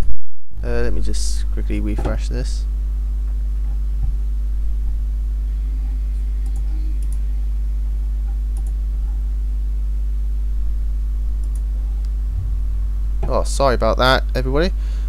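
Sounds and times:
electrical mains hum: 0:00.0 - 0:15.0
faint computer clicks: 0:05.8 - 0:07.3.

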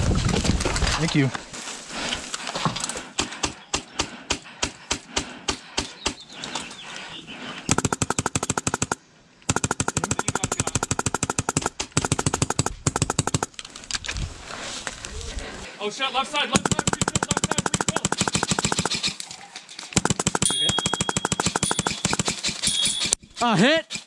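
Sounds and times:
airsoft rifles firing: 0:07.7 - 0:13.5, 0:16.6 - 0:19.2, 0:19.9 - 0:23.2.

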